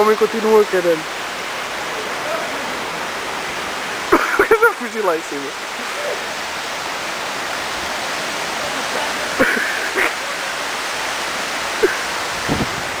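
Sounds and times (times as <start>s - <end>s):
water rushing: 0.0s - 13.0s
distant shouts: 1.7s - 3.5s.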